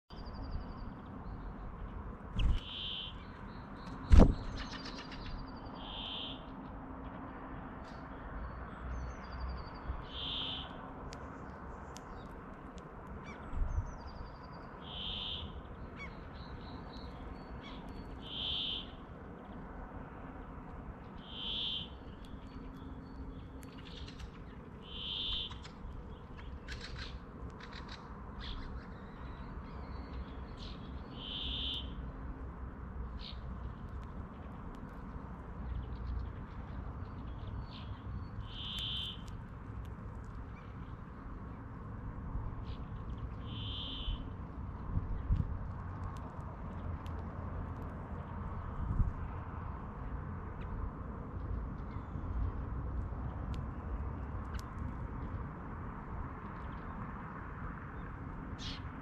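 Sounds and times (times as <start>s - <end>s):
small birds twittering: 0.1s - 6.7s, 7.9s - 44.6s, 57.9s - 59.0s
bird wheezy buzz song: 2.4s - 6.5s, 9.2s - 10.8s, 14.2s - 16.9s, 17.6s - 19.0s, 21.2s - 23.6s, 24.7s - 25.8s, 30.5s - 32.1s, 37.7s - 39.3s, 43.4s - 44.3s.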